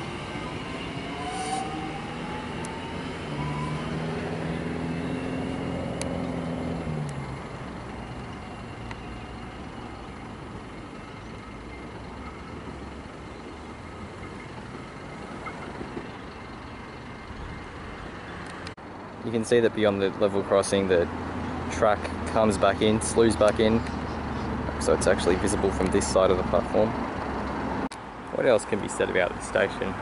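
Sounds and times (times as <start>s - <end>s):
electric train motors whining: 0.0s - 17.2s.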